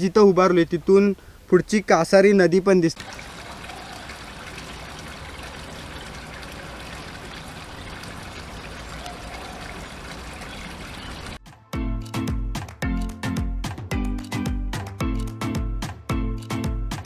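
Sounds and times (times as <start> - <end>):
water trickling into pond: 3.0 - 11.4.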